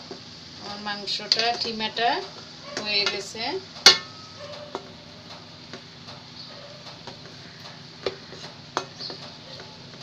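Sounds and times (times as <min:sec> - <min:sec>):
spatula scraping meat in a pot: 0:06.8 - 0:10.0.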